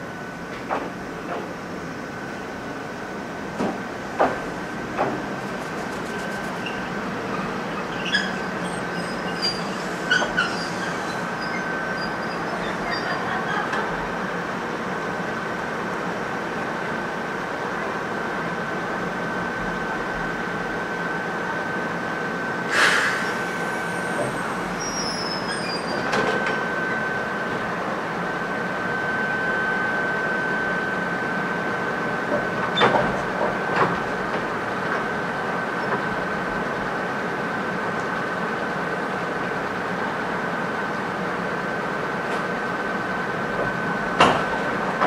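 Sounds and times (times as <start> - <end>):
electric railcar creeping: 0.0 - 45.0
steady high whine: 1.9 - 7.8
brief hiss: 22.7 - 24.4.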